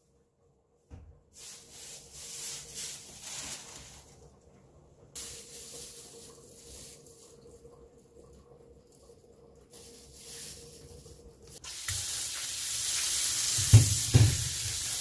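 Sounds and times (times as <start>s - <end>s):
dry rustling hiss: 1.3s - 4.2s, 5.2s - 7.6s, 9.7s - 15.0s.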